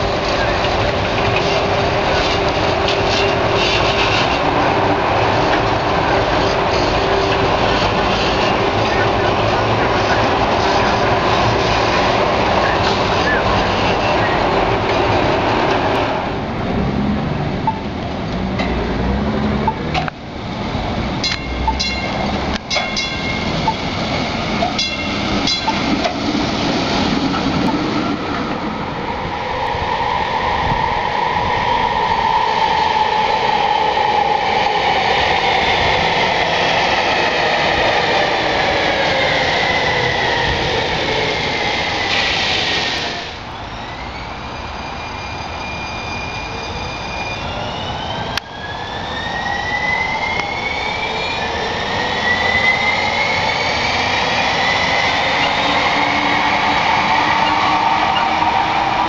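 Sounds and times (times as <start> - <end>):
train cars running on rail: 0.0 - 59.0
trolley bell dinging: 21.2 - 23.9, 24.6 - 26.1.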